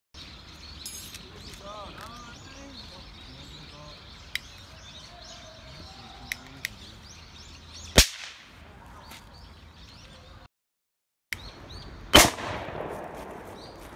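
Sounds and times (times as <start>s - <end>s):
birds chirping: 0.2s - 10.5s, 11.3s - 13.9s
sharp explosive crack: 8.0s - 8.5s, 12.1s - 13.8s.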